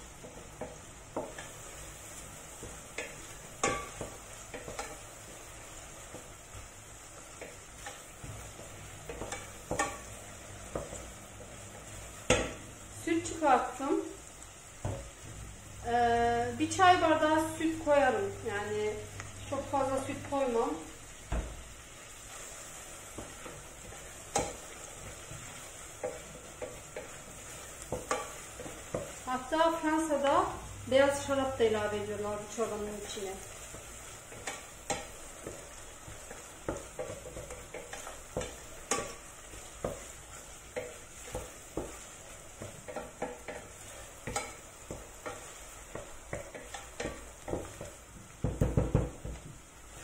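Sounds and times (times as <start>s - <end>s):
onion sizzling in fat: 0.0s - 50.0s
spoon knocking against pot: 46.0s - 49.4s.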